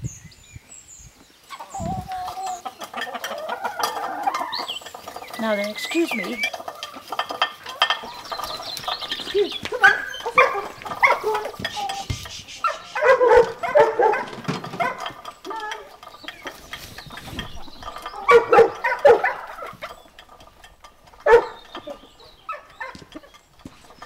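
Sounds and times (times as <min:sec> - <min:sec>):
dog barking: 0:09.8 - 0:11.5, 0:12.6 - 0:15.2, 0:18.3 - 0:19.7, 0:21.2 - 0:21.6.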